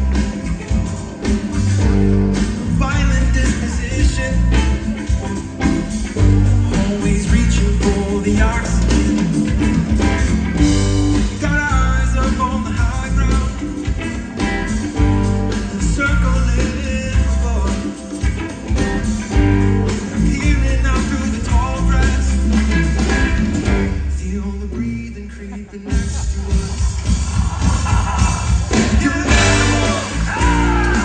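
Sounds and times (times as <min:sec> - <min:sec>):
rock band playing live: 0:00.0 - 0:31.0.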